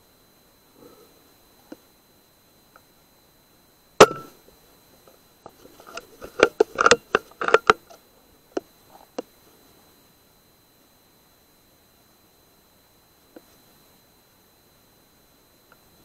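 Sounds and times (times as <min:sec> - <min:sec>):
air rifle shot: 0:04.0 - 0:04.4.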